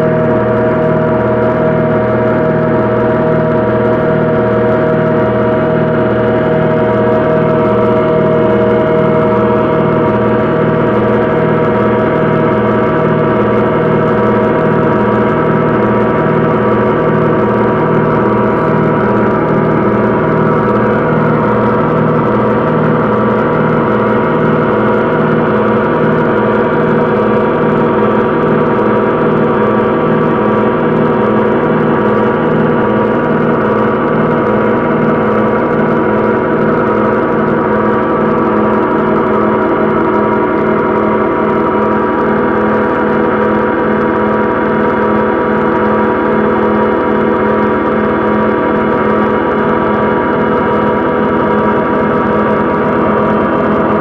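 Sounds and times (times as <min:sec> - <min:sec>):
dense synthesizer drone: 0:00.0 - 0:54.0
low synthesizer pulsing: 0:00.0 - 0:54.0.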